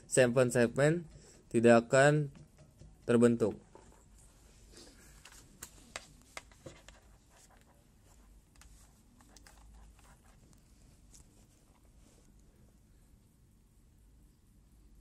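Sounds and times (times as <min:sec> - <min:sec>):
computer mouse clicks: 0:08.5 - 0:10.2.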